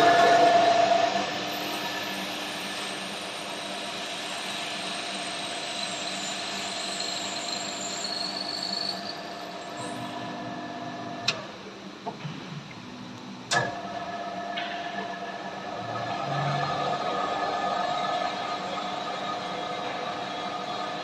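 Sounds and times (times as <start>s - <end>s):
drilling spindle motor whine: 0.0s - 11.1s.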